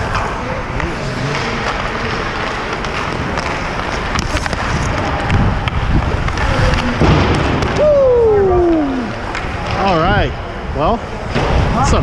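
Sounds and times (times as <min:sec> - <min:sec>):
hockey skates scraping on ice: 0:00.0 - 0:07.7
steady rush of noise: 0:00.0 - 0:12.0
low thumps: 0:01.4 - 0:09.8.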